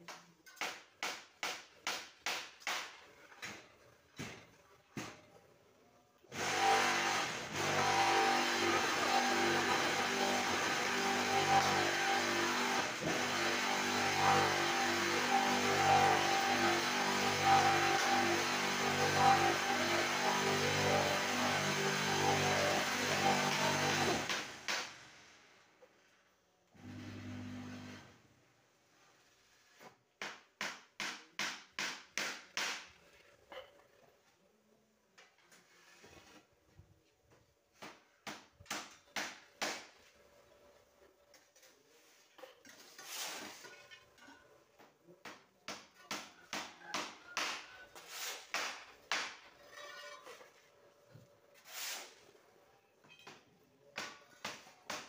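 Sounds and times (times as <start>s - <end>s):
wooden board scraping steel mould: 35.5s - 36.5s.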